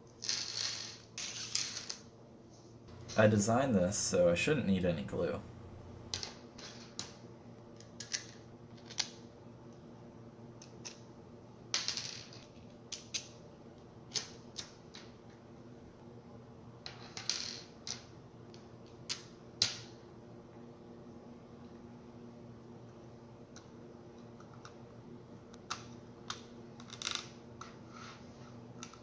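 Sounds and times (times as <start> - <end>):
plastic pieces clicking on tabletop: 7.8 - 9.2.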